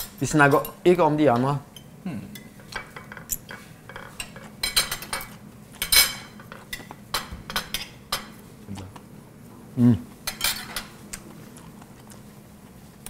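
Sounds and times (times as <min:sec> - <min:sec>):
cutlery clinking and scraping plates: 0:02.4 - 0:08.4, 0:10.3 - 0:10.9.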